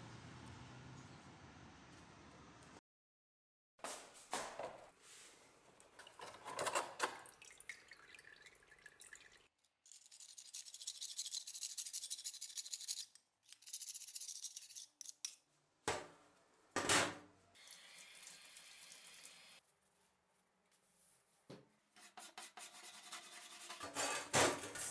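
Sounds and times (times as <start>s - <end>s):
water spraying in a steel sink: 17.6s - 19.6s
scraper rasping rust off metal: 22.0s - 24.2s.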